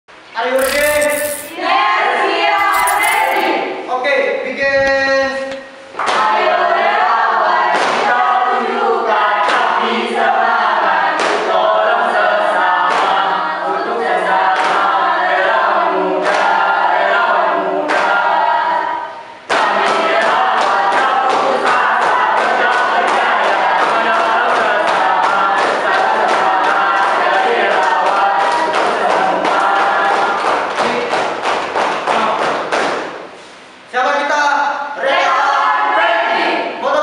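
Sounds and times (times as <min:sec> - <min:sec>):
group singing cheer song: 0:06.0 - 0:31.4, 0:34.9 - 0:37.0
hand claps: 0:20.6 - 0:33.2.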